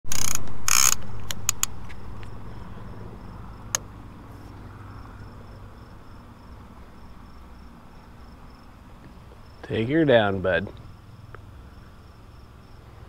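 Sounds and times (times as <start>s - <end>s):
sharp clicks: 0.1s - 2.4s
low hum: 0.1s - 9.6s
crickets chirping: 0.1s - 13.0s.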